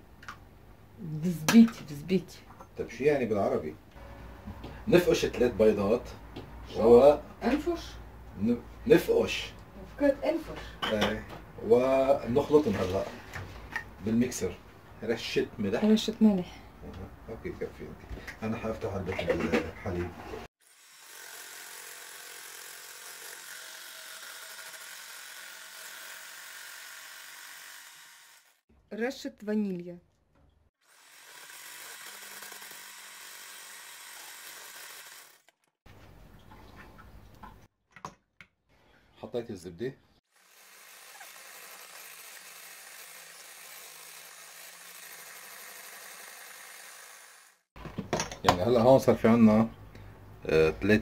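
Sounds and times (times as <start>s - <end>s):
electric hand mixer whirring: 20.6s - 28.6s, 30.8s - 35.6s, 40.3s - 47.7s.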